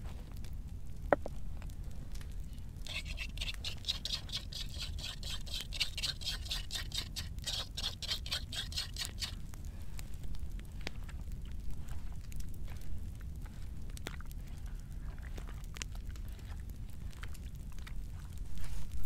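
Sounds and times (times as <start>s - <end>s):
metal utensil scraping wooden bowl: 2.8s - 9.4s.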